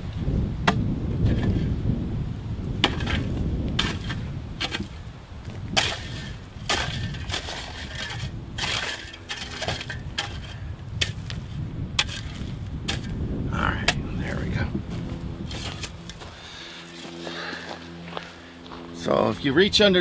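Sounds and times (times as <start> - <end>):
shovel chopping into rocky clay: 0.6 - 1.7, 2.8 - 5.0, 5.7 - 13.2, 14.9 - 16.2.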